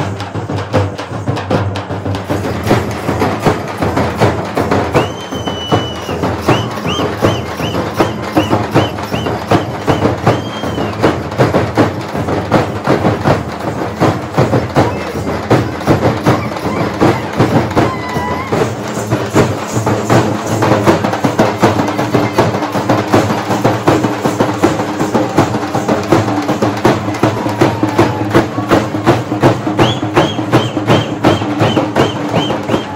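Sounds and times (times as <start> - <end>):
frame drums playing fast: 0.0 - 32.9
shrill high whistle blasts: 4.9 - 11.0, 29.8 - 32.9.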